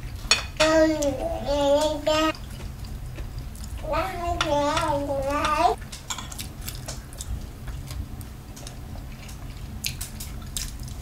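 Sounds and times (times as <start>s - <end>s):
quiet chewing: 5.7s - 11.0s.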